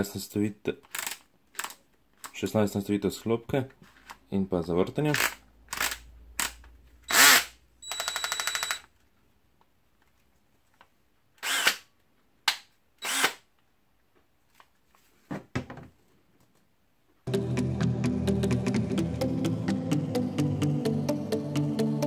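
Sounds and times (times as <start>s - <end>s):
knocks and clicks handling drill: 5.1s - 8.9s
cordless drill motor whining: 7.1s - 8.8s, 11.4s - 11.8s, 13.0s - 13.4s.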